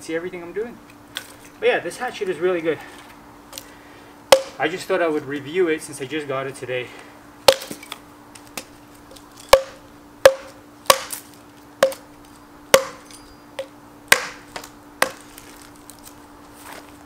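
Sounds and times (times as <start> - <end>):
hatchet chopping wood: 4.3 - 4.6, 7.5 - 7.8, 9.5 - 11.2, 11.8 - 12.1, 12.7 - 13.1, 14.1 - 15.3.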